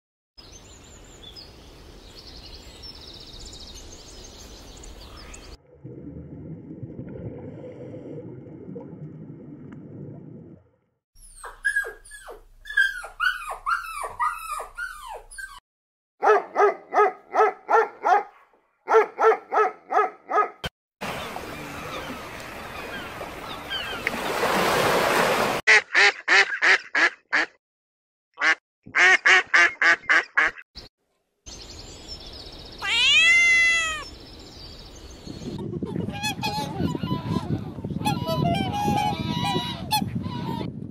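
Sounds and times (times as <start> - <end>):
fast quack-like calls: 25.7 - 27.6, 28.4 - 30.6
cat meow: 32.8 - 34.1.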